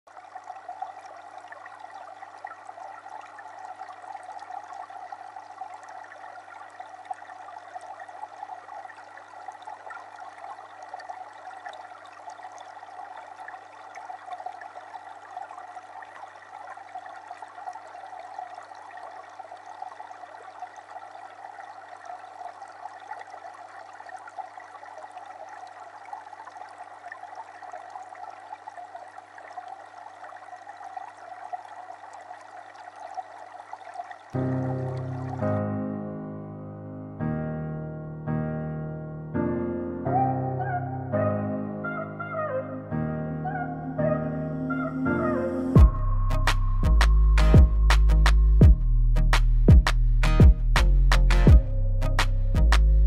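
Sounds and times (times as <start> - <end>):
water trickling: 0.1 - 35.7.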